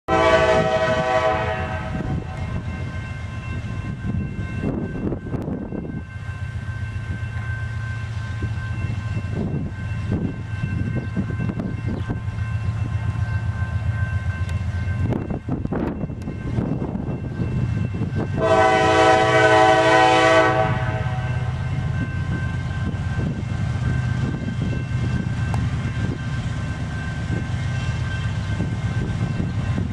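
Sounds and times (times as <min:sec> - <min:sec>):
locomotive horn blast: 0:00.1 - 0:02.6, 0:18.3 - 0:21.6.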